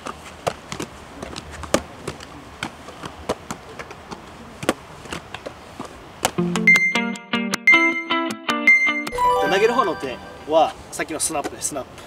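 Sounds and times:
balls smacking into hands: 0.0 - 6.4.

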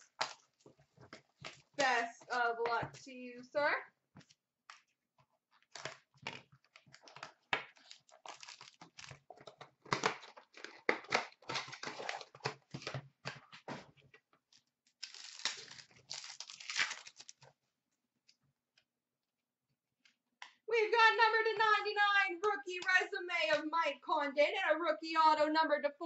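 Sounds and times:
foil wrappers crinkling: 7.0 - 12.8, 14.9 - 17.5.

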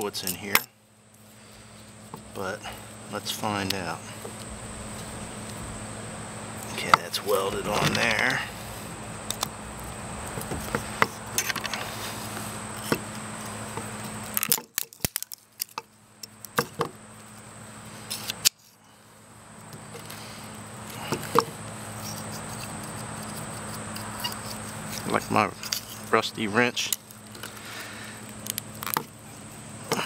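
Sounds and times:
faint hum: 0.0 - 30.0
pliers clicking and clanking: 0.2 - 0.7.

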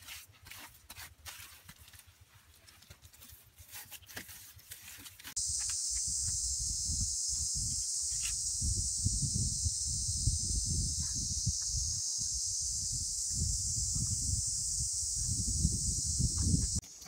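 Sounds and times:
hands rustling bamboo sticks: 0.0 - 5.7
wind buffeting microphone: 5.4 - 16.8
cicadas droning: 5.4 - 17.0.

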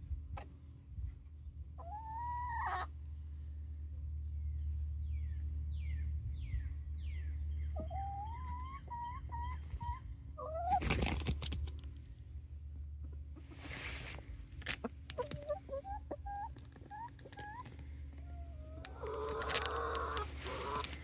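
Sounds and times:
young chickens chirping: 0.2 - 11.1, 12.9 - 21.0
wings flapping: 10.7 - 11.8.

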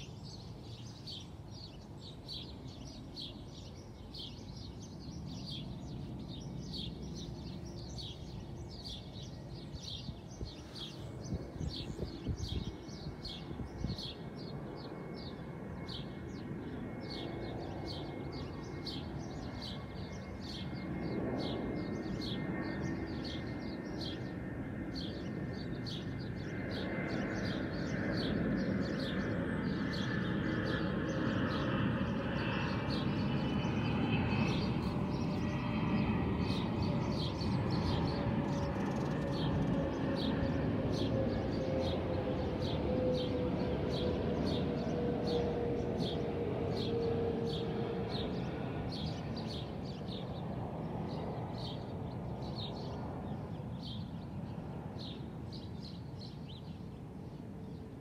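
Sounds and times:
bird chirping: 0.0 - 24.4
airplane rumbling overhead: 0.0 - 58.0.

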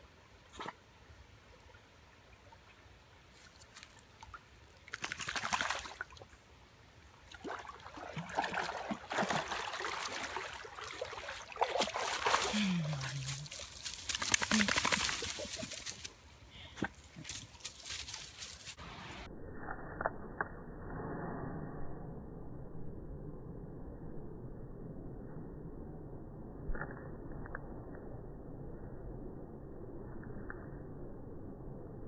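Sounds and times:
water sloshing and splashing: 3.3 - 6.3, 7.2 - 15.9.

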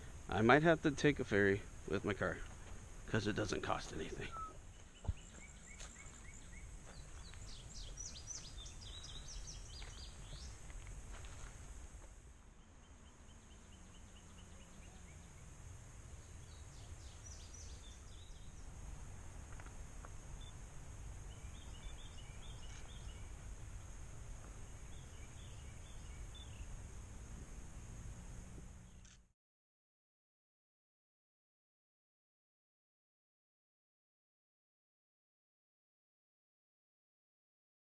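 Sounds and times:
steady high hiss: 0.0 - 29.2
birds calling: 2.0 - 27.0.

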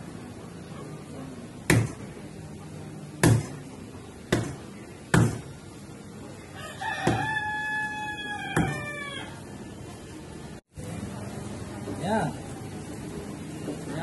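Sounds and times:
cleaver chopping on wooden block: 4.3 - 5.5, 7.0 - 7.3
rooster crowing: 6.5 - 9.5.

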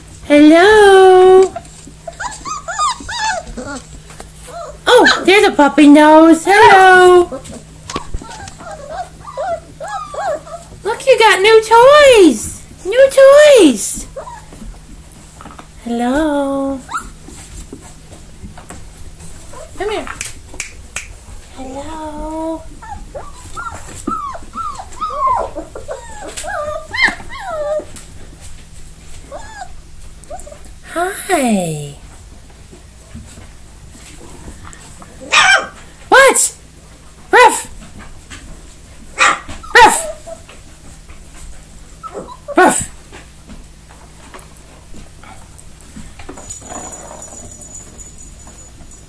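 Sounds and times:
puppies scratching on carpet: 1.1 - 30.8, 32.0 - 36.1, 36.7 - 49.0
puppies whimpering: 1.4 - 5.3, 6.6 - 10.8, 14.0 - 14.8, 16.8 - 17.3, 22.0 - 28.0, 29.2 - 30.7, 42.0 - 42.7.

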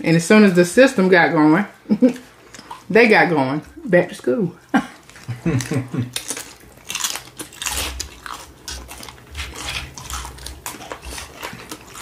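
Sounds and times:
crunching and chewing chips: 4.9 - 12.0.

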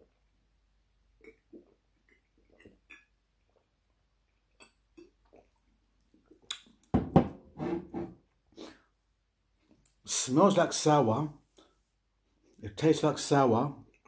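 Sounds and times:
person gulping a drink: 1.2 - 3.7, 4.3 - 6.9.

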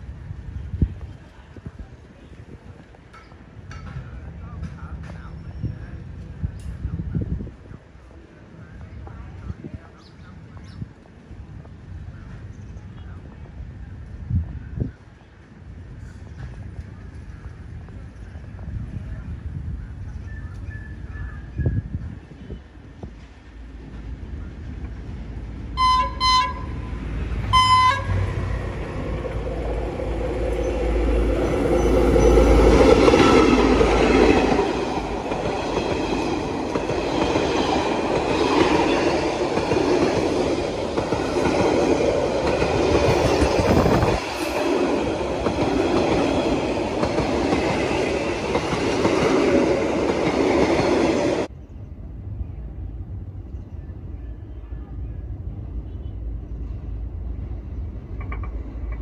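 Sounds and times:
train coaches rolling on rails: 0.0 - 51.5, 53.8 - 59.0
locomotive rumbling past: 22.8 - 59.0
locomotive horn blasts: 25.8 - 28.5.

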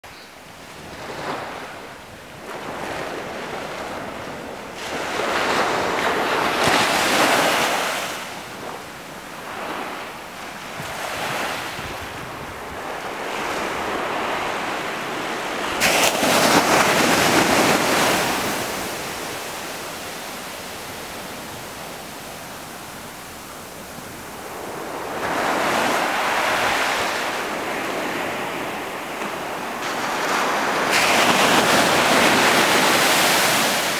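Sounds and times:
waves washing up beach: 0.6 - 33.9
wave crashing: 10.8 - 22.0, 24.3 - 33.9.

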